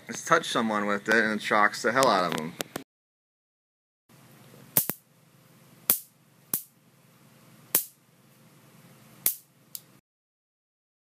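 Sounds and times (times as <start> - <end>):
electric fly swatter snapping: 4.8 - 5.0, 5.9 - 6.7, 7.7 - 8.0, 9.2 - 9.9.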